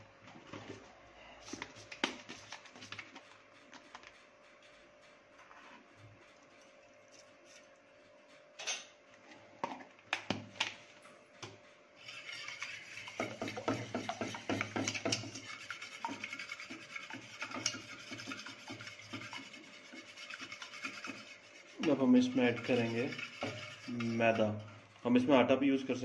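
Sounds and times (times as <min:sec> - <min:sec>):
whisk beating eggs in bowl: 0:11.4 - 0:26.0.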